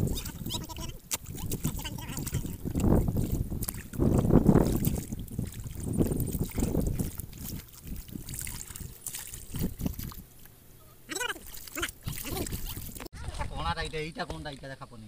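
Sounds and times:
hands squelching through muddy water: 0.0s - 13.1s.

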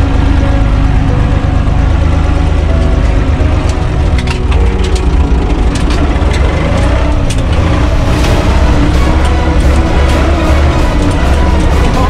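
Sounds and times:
tractor diesel engine running: 0.0s - 12.0s
sharp cracks and clicks: 3.6s - 12.0s.

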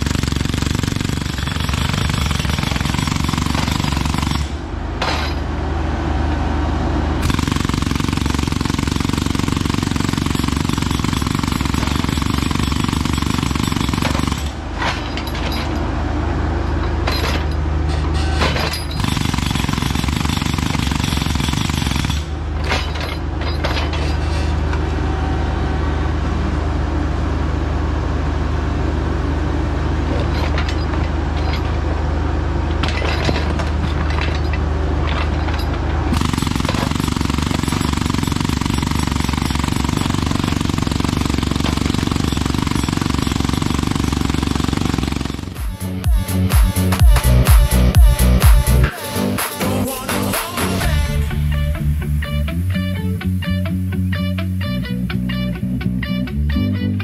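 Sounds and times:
hydraulic breaker hammering rock: 0.0s - 5.5s, 7.2s - 15.8s, 16.9s - 24.8s, 32.7s - 48.9s
diesel engine under load: 0.0s - 57.0s.

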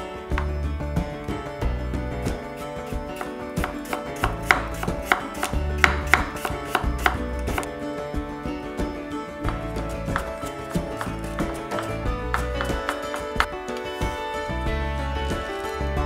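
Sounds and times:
background music: 0.0s - 16.0s
knife chopping on wooden board: 3.2s - 7.7s, 9.5s - 13.5s.

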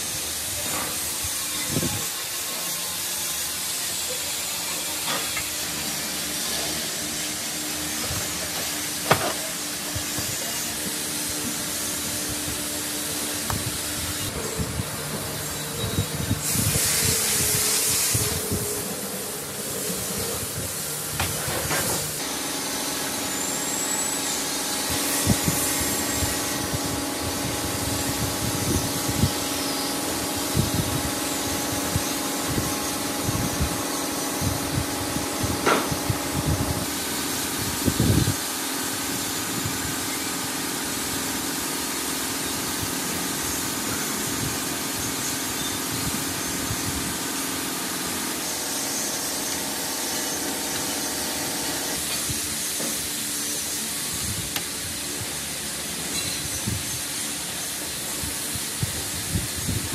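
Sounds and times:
steady hum: 5.7s - 40.5s.

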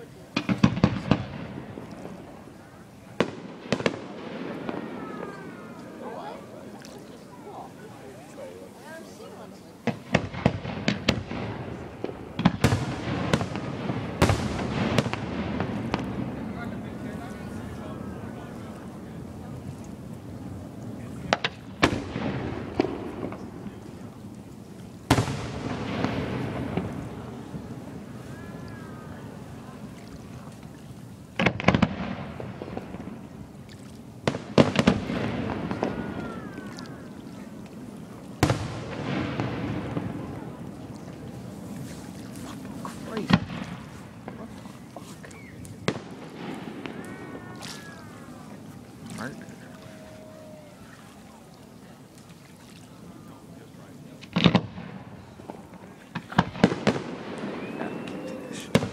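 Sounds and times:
fireworks bangs: 0.0s - 8.5s, 9.2s - 30.0s, 31.3s - 50.8s, 54.1s - 58.9s.

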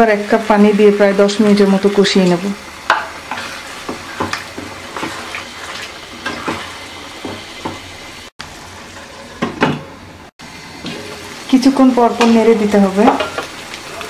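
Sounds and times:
curry sizzling in a pan: 0.0s - 14.0s
wooden spatula scraping pan: 2.9s - 7.8s.

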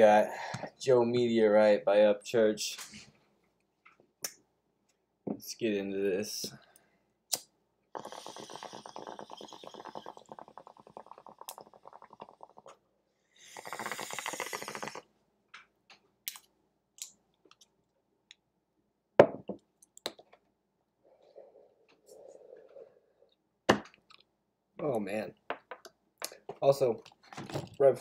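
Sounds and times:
water bubbling in bong: 8.0s - 12.8s.

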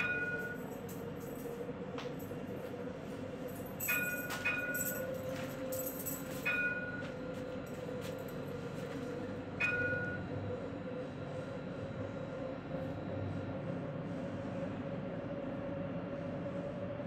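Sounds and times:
tram humming along track: 0.0s - 17.0s
sharp metallic clinks: 3.5s - 7.0s.

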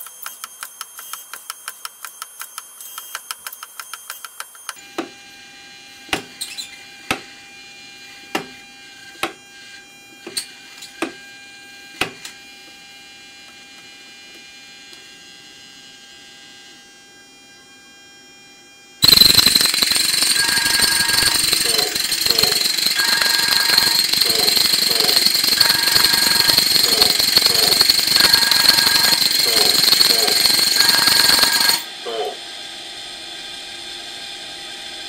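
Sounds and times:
loud harsh noise: 19.0s - 32.4s.

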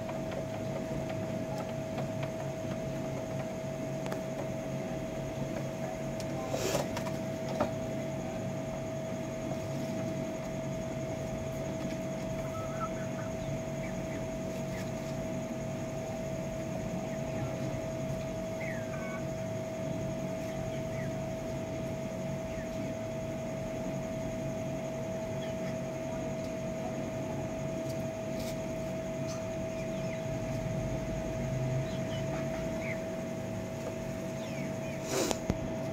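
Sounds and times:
machine hum: 0.0s - 35.9s
birds chirping: 29.1s - 30.6s, 31.7s - 33.2s, 34.1s - 35.1s.

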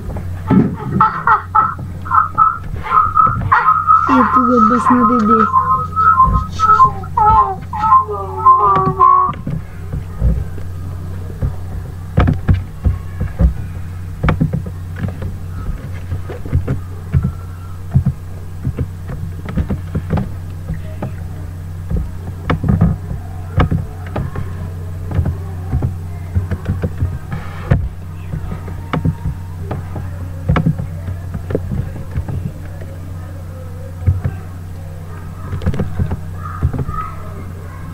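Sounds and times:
sharp clicks and knocks: 0.0s - 32.9s, 34.0s - 37.0s
low electrical hum: 0.0s - 37.9s
person whistling a tune: 2.4s - 9.4s.

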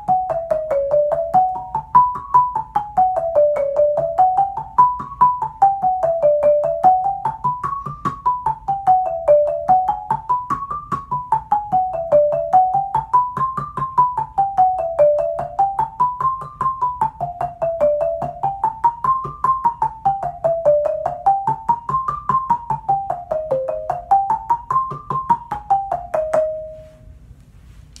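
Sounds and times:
marimba run with yarn mallets: 0.0s - 27.0s.

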